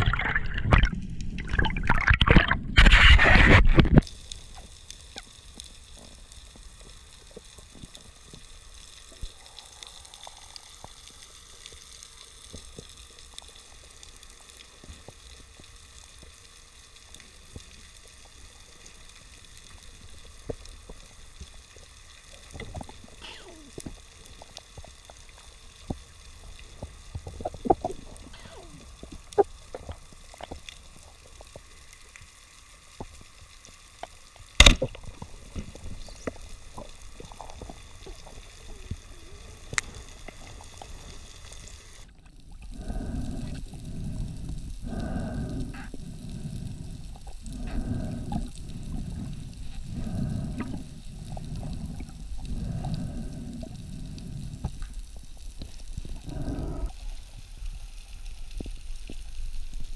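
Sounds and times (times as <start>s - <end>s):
short underwater clicks and crackles: 0.0s - 59.9s
loud sharp click: 34.6s - 34.9s
low underwater rush: 34.6s - 59.9s.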